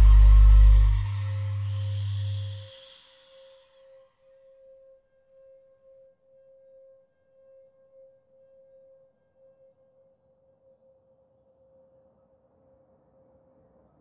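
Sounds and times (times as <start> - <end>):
sustained pulsing drone tone: 0.0 - 3.1.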